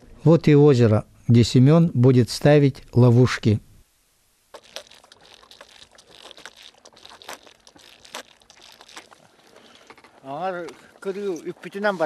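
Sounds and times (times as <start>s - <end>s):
snow crunching: 4.6s - 12.0s.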